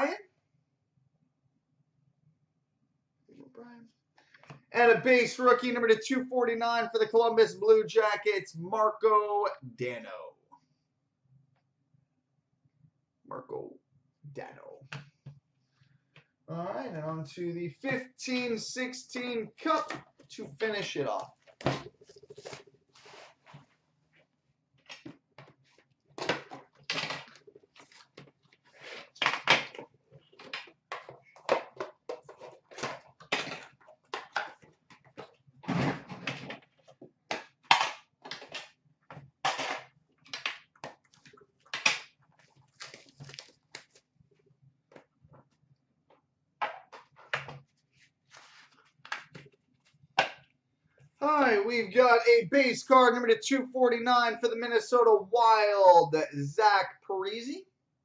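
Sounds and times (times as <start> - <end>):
shrink-wrap crinkling and tearing: 42.4 - 44.0.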